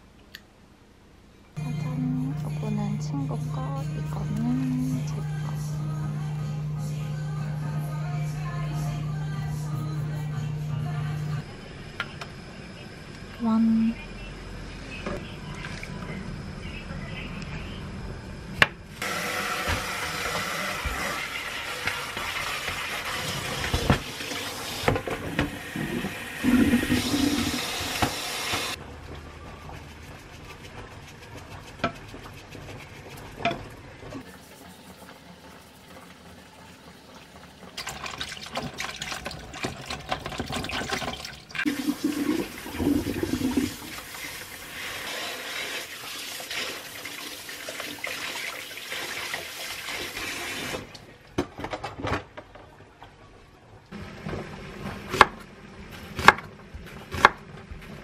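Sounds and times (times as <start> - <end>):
tap water rushing into basin: 34.8 - 51.0.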